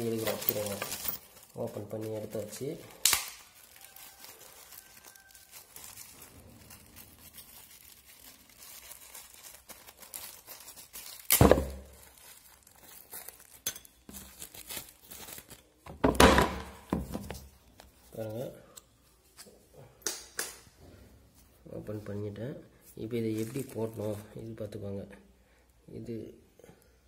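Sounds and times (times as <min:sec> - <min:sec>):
packet crinkling and tearing: 0:00.0 - 0:15.8, 0:23.2 - 0:24.3.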